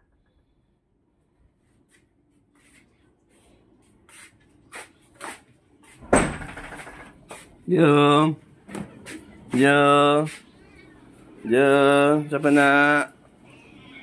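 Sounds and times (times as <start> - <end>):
footsteps shuffling on tiles: 1.6 - 6.1, 7.2 - 7.7.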